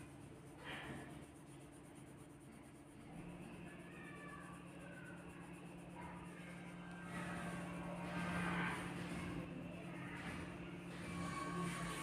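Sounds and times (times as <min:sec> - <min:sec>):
pen scratching on paper: 0:00.0 - 0:09.4.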